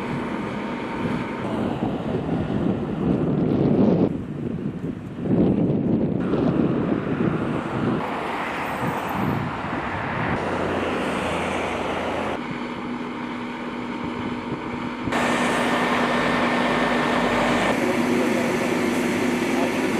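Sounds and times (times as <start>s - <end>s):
road traffic passing: 0.0s - 19.9s
steady motor hum: 10.4s - 19.9s
fire hose spraying water: 15.1s - 19.9s.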